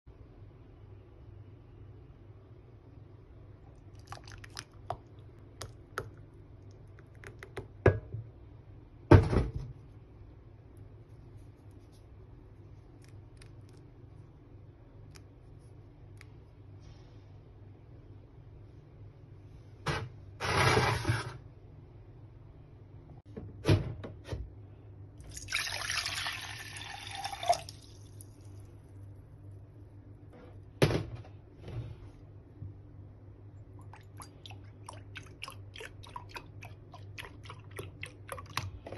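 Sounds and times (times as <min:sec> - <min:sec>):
water poured into saucepan: 0:25.2 - 0:28.4.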